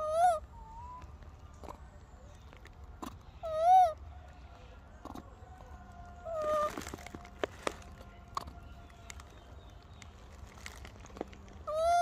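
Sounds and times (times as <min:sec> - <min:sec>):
macaque coo call: 0:00.0 - 0:01.9, 0:03.0 - 0:04.1, 0:05.0 - 0:07.0, 0:11.6 - 0:12.0.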